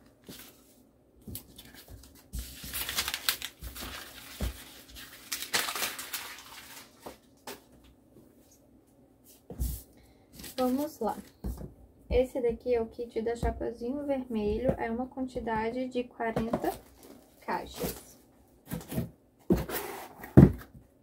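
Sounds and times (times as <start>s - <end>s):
paper and packaging rustling: 0.0s - 7.9s, 10.4s - 11.4s, 16.4s - 20.3s.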